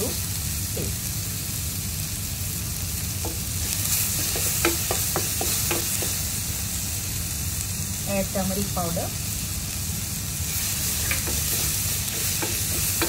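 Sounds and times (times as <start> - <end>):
vegetables sizzling in oil: 0.0 - 13.0
wooden spatula tapping and scraping: 3.2 - 6.3, 10.8 - 13.0.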